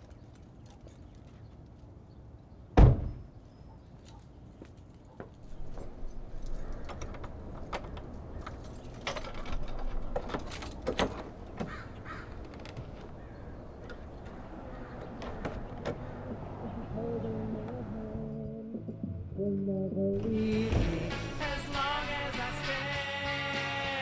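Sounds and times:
car door slamming: 2.8 - 3.2
wooden door swinging open: 6.7 - 14.1.

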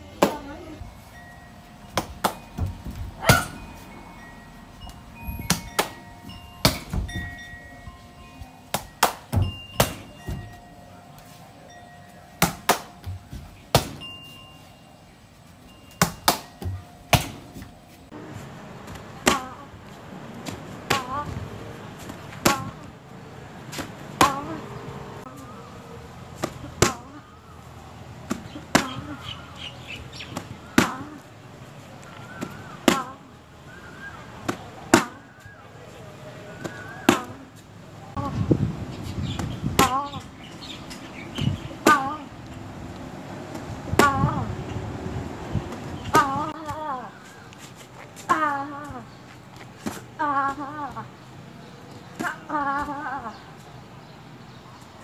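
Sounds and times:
kicks slapping on pads: 8.7 - 10.6, 12.4 - 14.0, 16.0 - 17.7.

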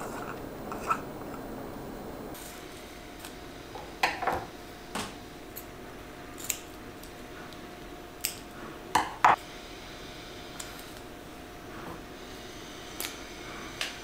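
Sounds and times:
scissors clicks: 6.4 - 7.1, 8.2 - 8.4.

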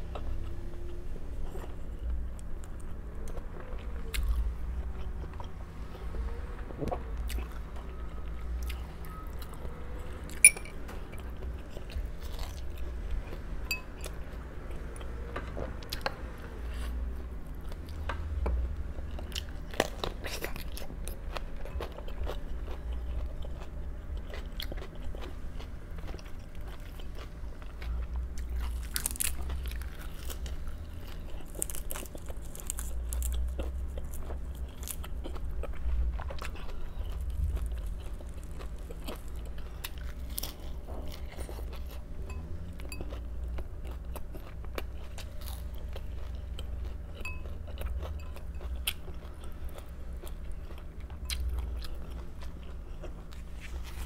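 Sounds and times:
chewing crisp raw vegetables: 0.0 - 54.0
steady low hum: 0.0 - 54.0.

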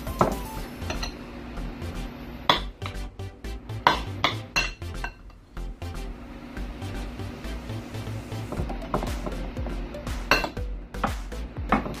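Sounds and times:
background music: 0.0 - 12.0
metal spoon clinking on ceramic bowl: 3.9 - 5.2.

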